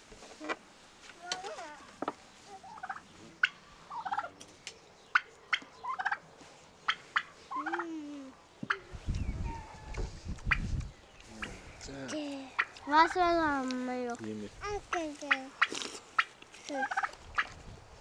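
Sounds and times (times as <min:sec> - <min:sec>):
turkey gobbling: 0:02.6 - 0:04.4, 0:05.1 - 0:06.2, 0:06.9 - 0:07.9, 0:15.3 - 0:17.5.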